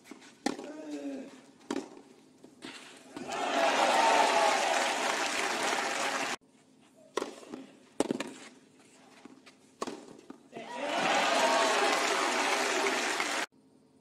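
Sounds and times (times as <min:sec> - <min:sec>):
tennis ball impacts: 0:00.4 - 0:00.8, 0:07.2 - 0:08.5, 0:09.8 - 0:10.4
crowd applauding and cheering: 0:03.2 - 0:06.4, 0:10.7 - 0:13.5.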